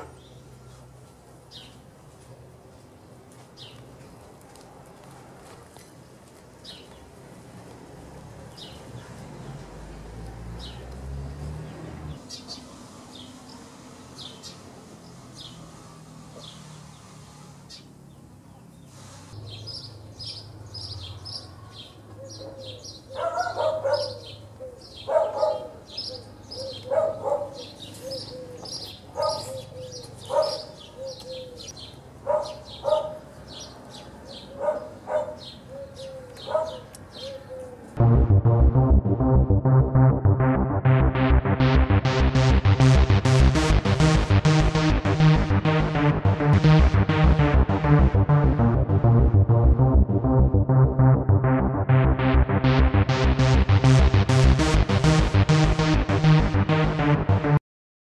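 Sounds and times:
small birds chirping: 0:11.6 - 0:37.8
dog barking: 0:22.4 - 0:24.3, 0:25.1 - 0:26.0, 0:26.8 - 0:27.7, 0:29.1 - 0:29.5, 0:30.3 - 0:30.8, 0:32.2 - 0:33.3, 0:34.5 - 0:35.5, 0:36.4 - 0:36.9
low rumble: 0:38.0 - 0:57.6.

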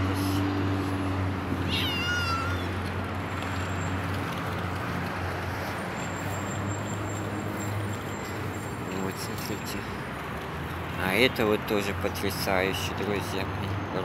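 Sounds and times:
street traffic noise: 0:00.0 - 0:14.0.

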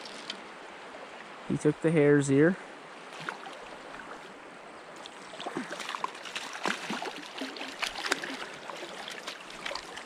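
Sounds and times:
stream rushing: 0:00.0 - 0:10.0
net splashing in water: 0:05.0 - 0:10.0.

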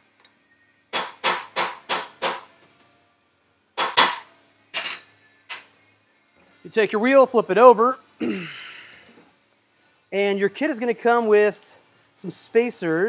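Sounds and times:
hammer striking metal: 0:00.9 - 0:02.5, 0:03.8 - 0:05.0.

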